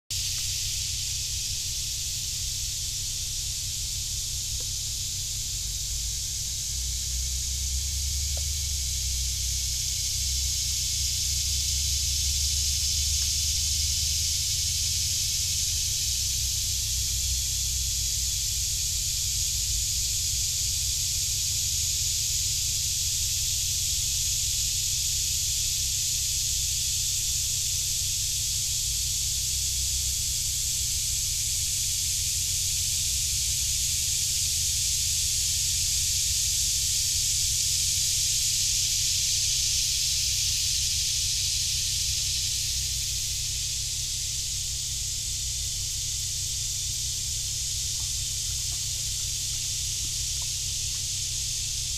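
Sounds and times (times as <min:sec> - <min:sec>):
cicadas buzzing: 0:00.1 - 0:51.9.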